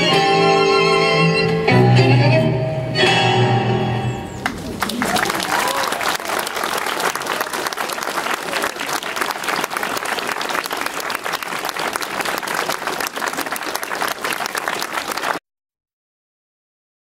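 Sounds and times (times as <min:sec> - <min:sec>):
crowd applauding: 0:04.4 - 0:15.4.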